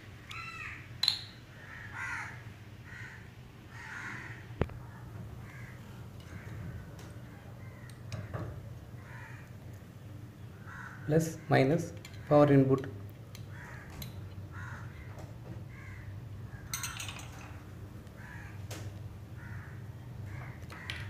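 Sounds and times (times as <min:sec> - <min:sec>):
steady low hum: 0:00.0 - 0:21.0
crows cawing: 0:00.3 - 0:00.9, 0:01.5 - 0:09.6, 0:10.5 - 0:11.7, 0:13.4 - 0:16.9, 0:18.2 - 0:18.6, 0:19.4 - 0:21.0.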